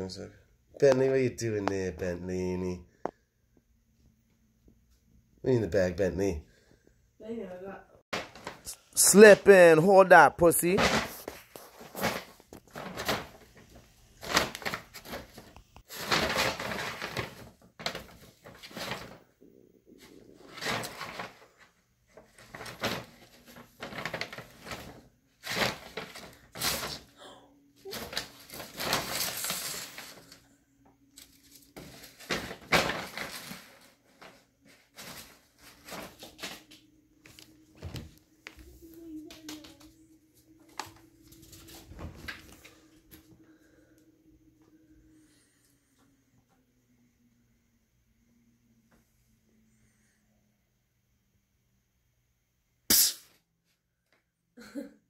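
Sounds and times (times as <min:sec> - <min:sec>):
paper bags rustling: 0:08.2 - 0:19.3, 0:20.0 - 0:27.2, 0:27.8 - 0:30.5, 0:31.2 - 0:39.8.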